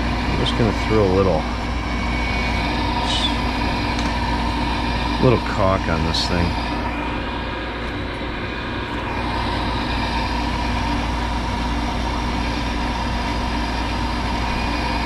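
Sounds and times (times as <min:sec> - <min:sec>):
furnace motor hum: 0:00.0 - 0:15.0
constant high tone: 0:00.4 - 0:07.4.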